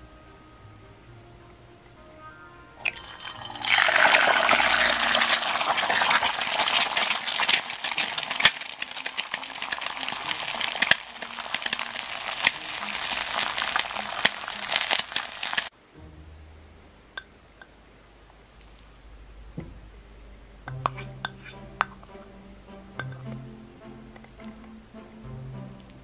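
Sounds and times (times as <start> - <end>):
egg sizzling in a frying pan: 2.8 - 15.7.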